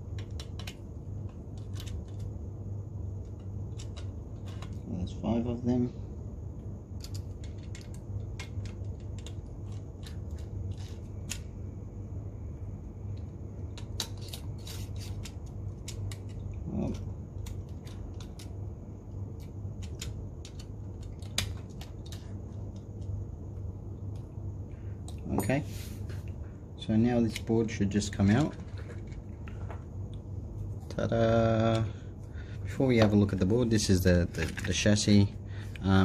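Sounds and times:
steady low hum: 0.0s - 36.0s
handling small plastic parts: 7.0s - 11.6s, 32.9s - 35.9s.

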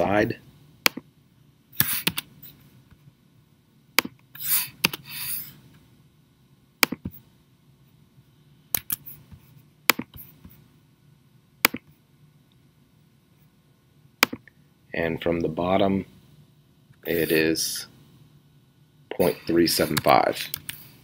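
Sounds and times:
mouse and keyboard clicks: 1.8s - 2.3s, 8.7s - 9.1s, 11.6s - 11.9s.

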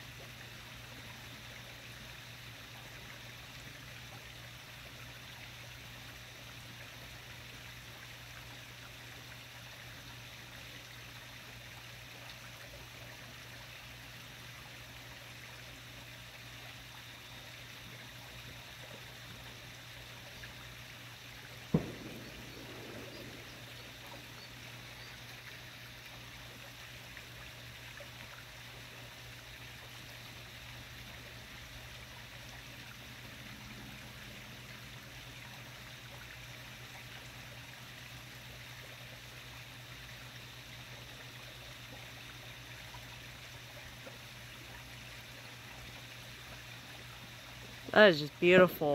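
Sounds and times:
steady hiss: 0.0s - 32.2s
low steady hum: 0.0s - 48.9s.

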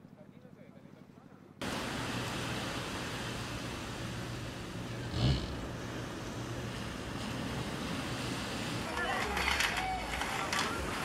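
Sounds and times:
sea and wind: 1.6s - 5.0s, 5.7s - 11.0s.

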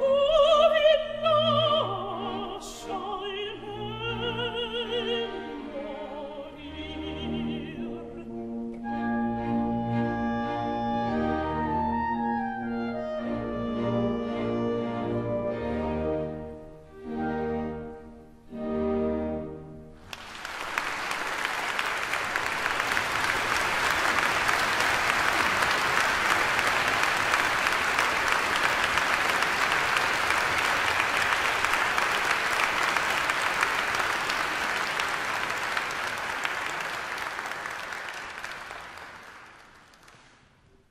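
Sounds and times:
audience applause: 20.0s - 40.5s.

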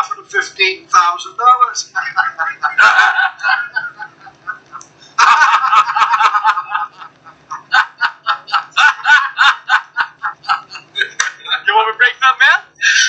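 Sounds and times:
hearty laughter: 1.9s - 11.7s.

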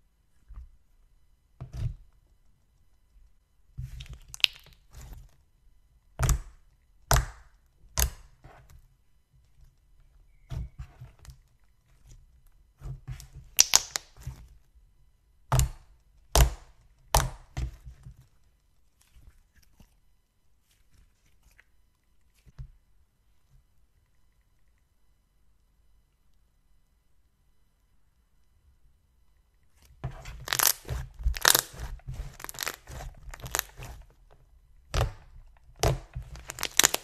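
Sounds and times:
soft crackling of slime: 1.7s - 15.0s, 15.6s - 24.8s, 29.4s - 37.0s
hands squishing slime: 3.8s - 5.3s, 12.8s - 14.5s, 29.8s - 37.0s
slime smacks and pops: 4.3s - 4.8s, 13.6s - 14.1s.

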